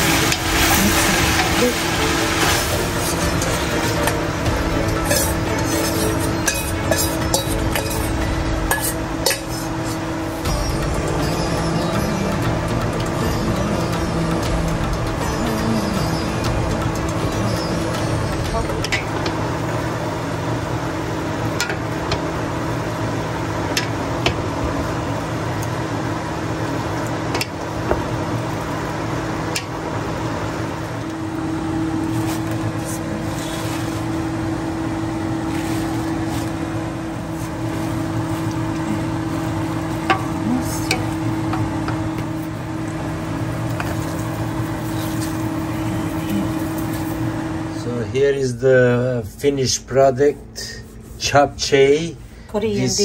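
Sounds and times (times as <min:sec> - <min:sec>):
steady hum: 0:00.0 - 0:53.0
wooden spoons scraping metal pot: 0:04.9 - 0:10.4.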